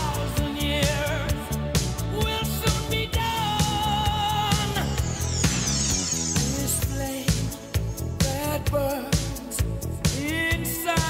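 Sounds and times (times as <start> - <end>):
pop-funk music: 0.0 - 11.0
high falling sweep: 1.8 - 8.6.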